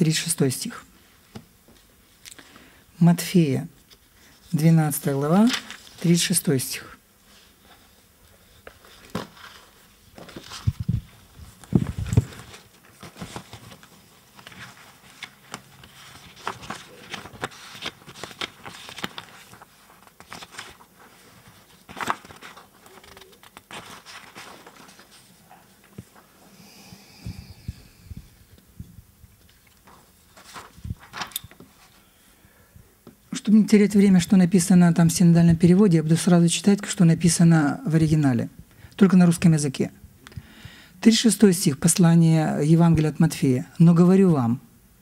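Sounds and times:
paper rustling: 3.8s - 6.4s, 7.3s - 26.4s, 29.4s - 32.0s.

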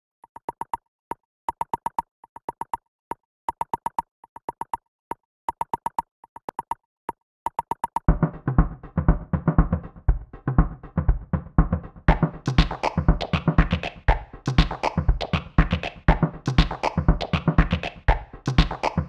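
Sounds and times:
drum-led music: 8.1s - 19.0s.

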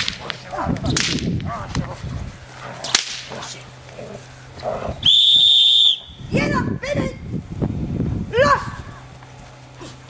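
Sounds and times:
training stick cracking: 0.0s - 2.0s, 2.7s - 4.0s
loud high whistle: 5.0s - 6.2s.

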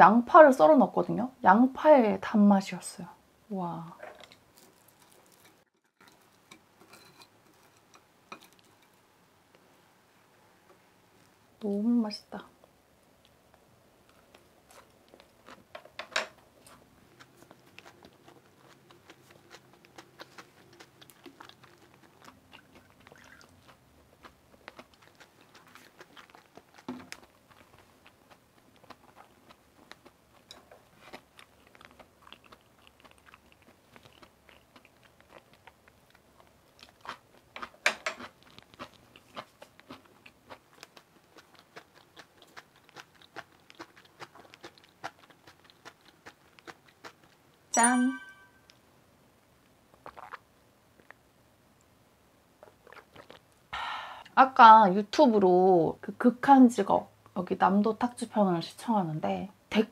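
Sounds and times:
chewing and crunching pancake: 4.0s - 9.0s, 13.2s - 47.7s, 49.9s - 51.3s, 52.6s - 53.6s.

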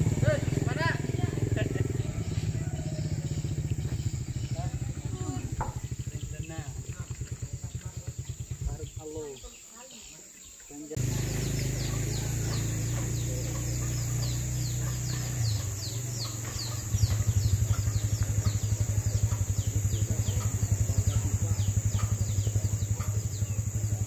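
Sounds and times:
small engine running: 0.0s - 9.0s, 10.9s - 24.0s
high insect drone: 0.0s - 24.0s
rapid high chirps: 11.0s - 24.0s.

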